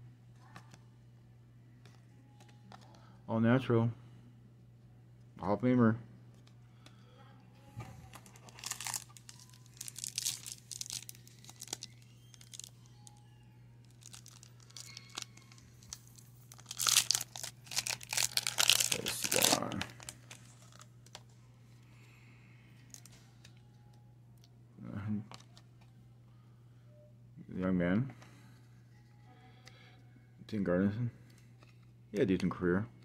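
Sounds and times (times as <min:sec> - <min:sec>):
steady low hum: 0:00.0 - 0:33.0
foil wrapper tearing and crinkling: 0:08.1 - 0:12.8, 0:13.9 - 0:20.9.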